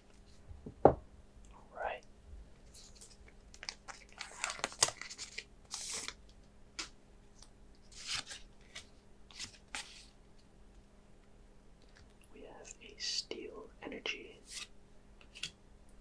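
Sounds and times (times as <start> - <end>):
foil wrapper tearing and crinkling: 3.5 - 6.2.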